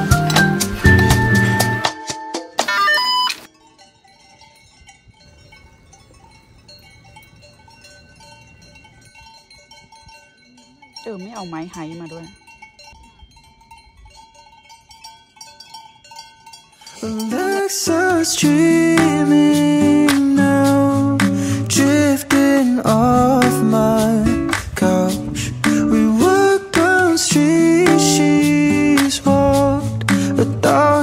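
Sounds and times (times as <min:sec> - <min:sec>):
background music: 0:00.0 - 0:03.5, 0:17.2 - 0:31.0
livestock bells clanking: 0:00.0 - 0:31.0.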